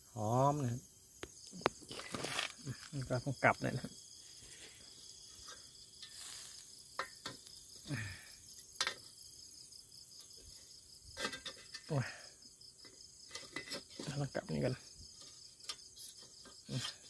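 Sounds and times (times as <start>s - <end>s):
crickets chirping: 0.0s - 17.0s
grill clamp clicks and knocks: 8.8s - 9.1s, 11.2s - 11.9s.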